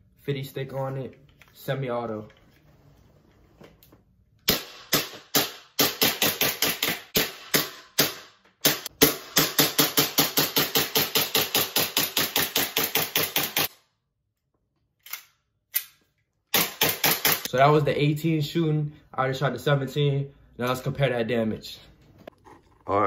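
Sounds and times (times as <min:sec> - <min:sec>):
airsoft pistol shots: 0:04.5 - 0:13.7, 0:16.5 - 0:17.5.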